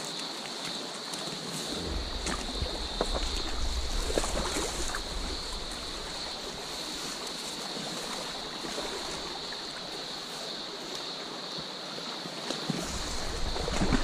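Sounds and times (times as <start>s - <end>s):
stream running over stones: 0.0s - 14.0s
high hiss: 1.4s - 10.8s
low rumble on microphone: 1.6s - 7.0s.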